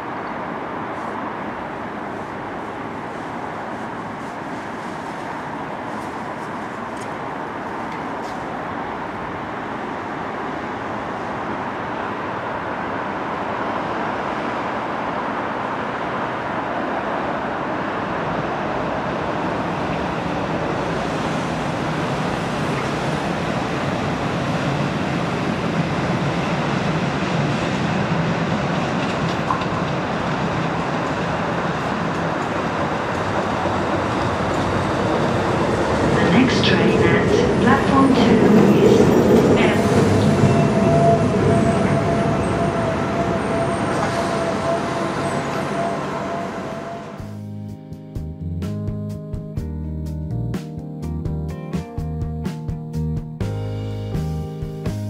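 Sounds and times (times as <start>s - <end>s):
train wheels on rail: 0.0s - 47.3s.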